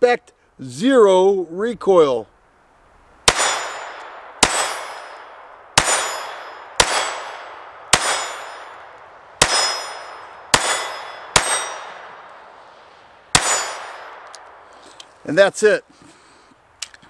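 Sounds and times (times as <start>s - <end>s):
pistol shots: 3.3s - 12.4s, 13.3s - 14.6s.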